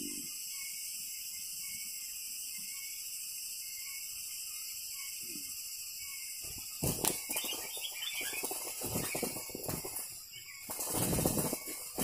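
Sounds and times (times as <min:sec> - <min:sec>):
bird chirps: 0:00.0 - 0:12.0
bird wings flapping: 0:06.4 - 0:12.0.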